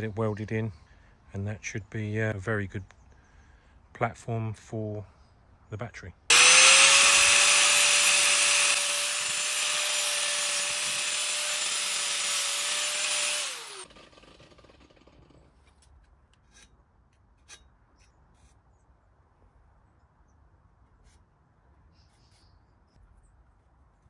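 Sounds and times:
angle grinder whining: 0:06.3 - 0:15.3.

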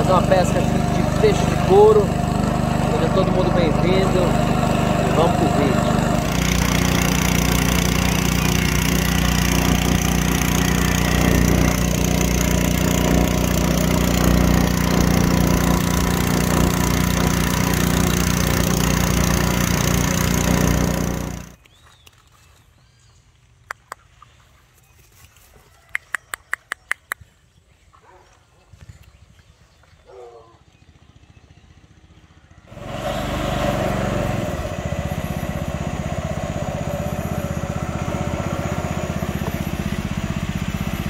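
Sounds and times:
outboard motor running: 0:00.0 - 0:21.6, 0:29.8 - 0:41.0.

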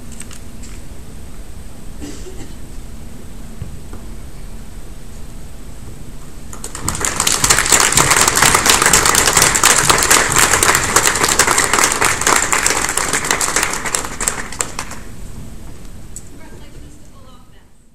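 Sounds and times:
audience applauding: 0:06.5 - 0:15.1.

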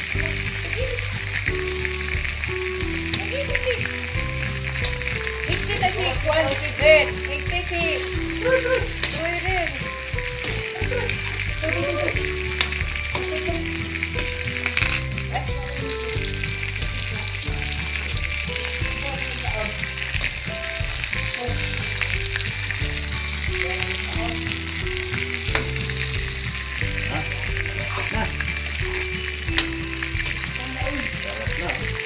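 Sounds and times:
noodles sizzling in a wok: 0:00.0 - 0:32.0
quiet background music: 0:00.0 - 0:32.0
spatula scraping a wok: 0:08.8 - 0:11.4.

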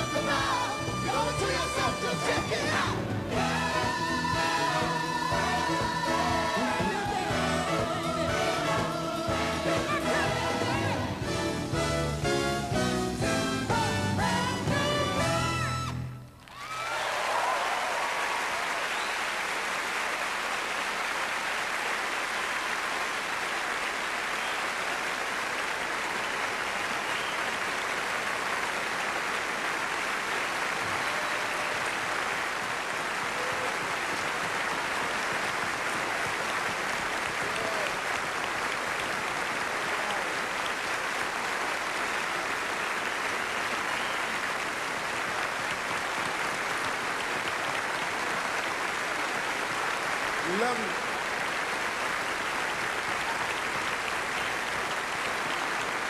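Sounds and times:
audience applauding: 0:00.0 - 0:11.3, 0:14.4 - 0:56.0.

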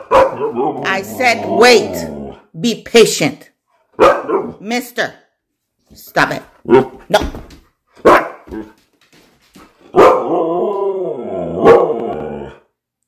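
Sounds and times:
dog barking: 0:00.0 - 0:00.7, 0:04.0 - 0:04.6, 0:08.0 - 0:08.7, 0:09.9 - 0:10.4, 0:11.6 - 0:12.0
dog howling call: 0:10.0 - 0:12.6.

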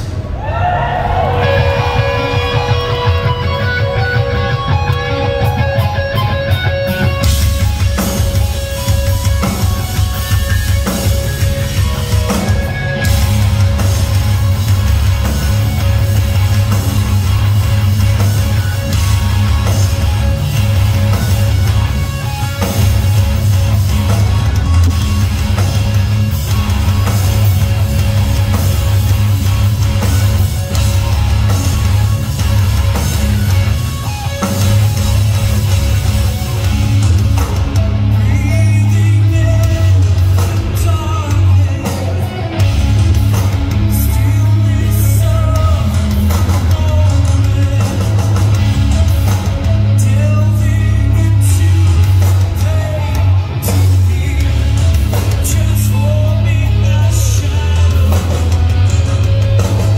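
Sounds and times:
bass guitar: 0:00.0 - 0:59.9
drums: 0:00.0 - 0:59.9
electric guitars: 0:00.0 - 0:59.9.

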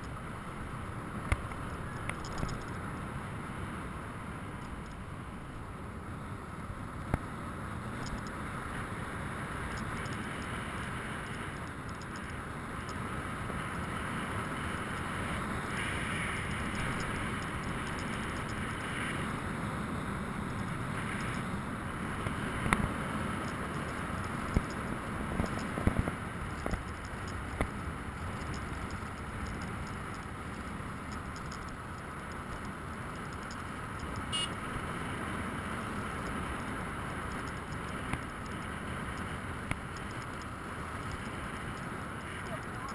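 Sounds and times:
motorcycle engine: 0:13.2 - 0:42.9.

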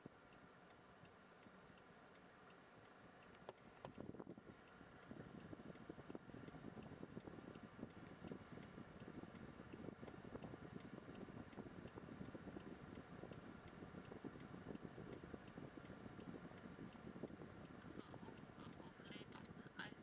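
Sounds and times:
faint regular ticking: 0:00.2 - 0:20.0
low crackly rumbling: 0:05.0 - 0:20.0.

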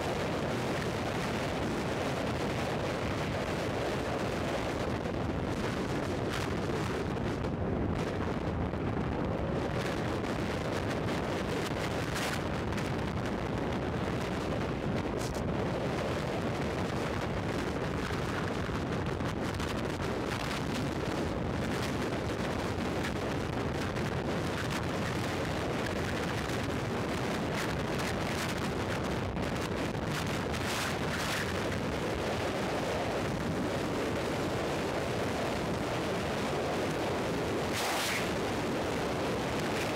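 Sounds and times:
wind buffeting microphone: 0:00.0 - 0:39.9
gusty rustles: 0:09.2 - 0:39.9
road noise: 0:37.2 - 0:39.9.

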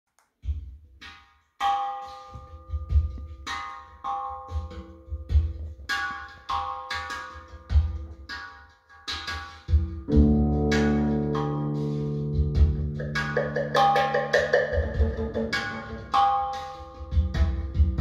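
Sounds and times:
struck percussive notes ringing: 0:09.2 - 0:18.0
deep bass hits: 0:10.1 - 0:13.8.

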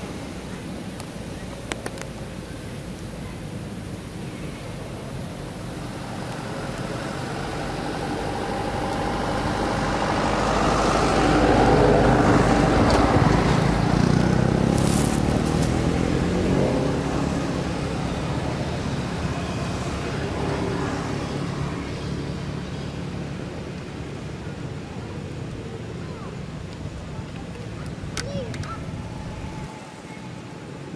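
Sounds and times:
vehicle passing by: 0:05.4 - 0:24.4.

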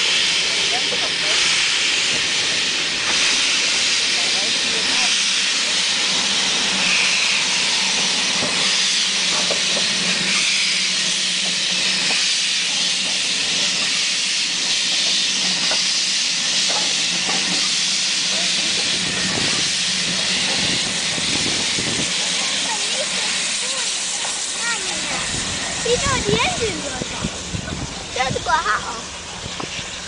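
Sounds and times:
loud steam hiss: 0:00.0 - 0:30.0
steam locomotive moving slowly: 0:00.0 - 0:30.0.

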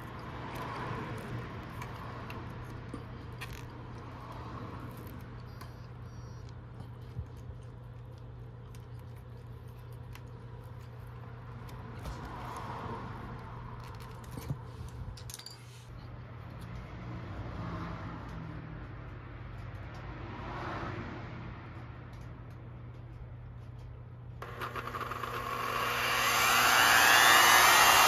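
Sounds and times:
steady low hum: 0:22.4 - 0:28.0.

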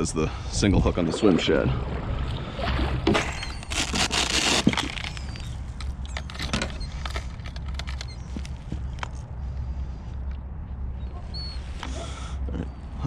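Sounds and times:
tackle box and lures rattling: 0:03.1 - 0:09.2
steady low rumble: 0:04.8 - 0:13.0.

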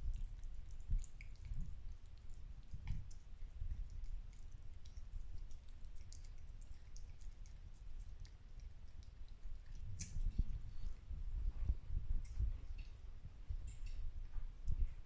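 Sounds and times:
cat licking wet clicks: 0:00.0 - 0:11.1
low rumble: 0:09.1 - 0:15.0.

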